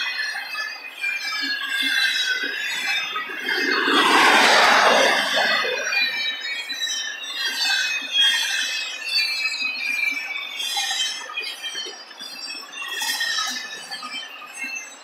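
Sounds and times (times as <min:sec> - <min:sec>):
train wheels squealing on rail: 0:00.0 - 0:15.0
train rolling noise: 0:01.8 - 0:06.7.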